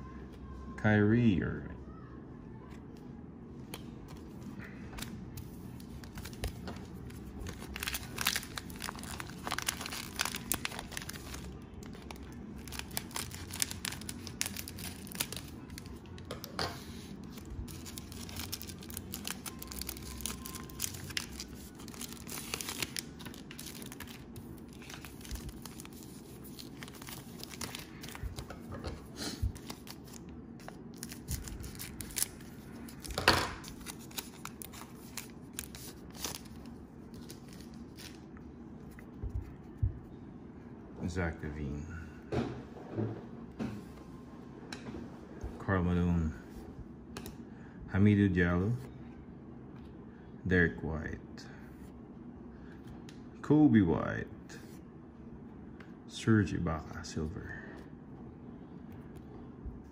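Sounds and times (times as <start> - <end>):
cellophane wrapper crinkling and tearing: 5.8 - 16.3, 17.2 - 28.6, 29.5 - 38.4.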